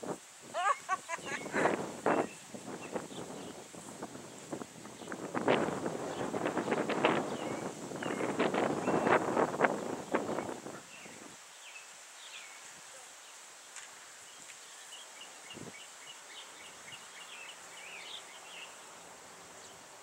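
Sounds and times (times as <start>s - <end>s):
bird chirping: 0.6s - 3.6s, 6.1s - 9.2s, 14.3s - 19.9s.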